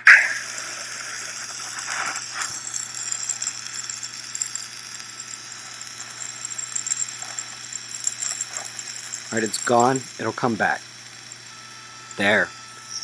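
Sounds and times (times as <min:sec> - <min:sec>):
faint high whining lines: 0:00.0 - 0:13.0.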